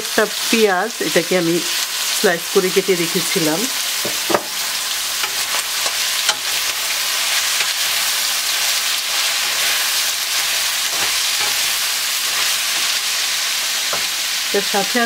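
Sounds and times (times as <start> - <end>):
food sizzling in hot oil: 0.0 - 15.0
spatula knocking and scraping pan: 4.0 - 6.9, 9.4 - 14.2.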